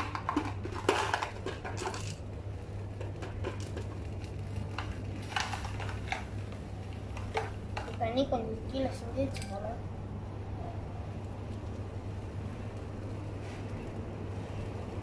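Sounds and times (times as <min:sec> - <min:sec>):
foil pouch clicking and crackling: 0:00.0 - 0:08.0
steady low hum: 0:00.0 - 0:15.0.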